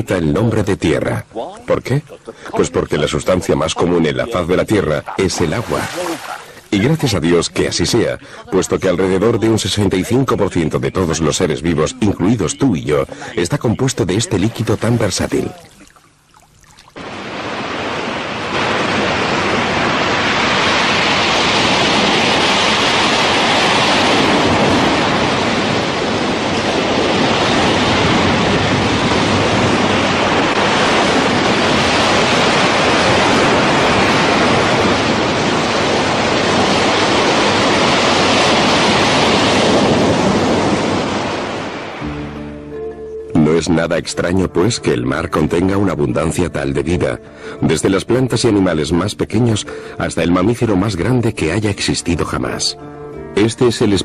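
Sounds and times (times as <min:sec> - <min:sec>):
ocean waves breaking: 0:02.3 - 0:09.9, 0:11.0 - 0:42.4.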